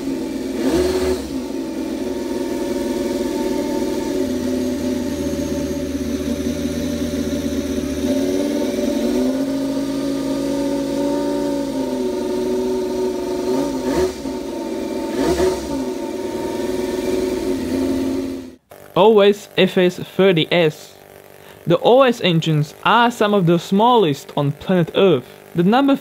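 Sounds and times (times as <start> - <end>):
model engine idling and revving: 0.0 - 26.0.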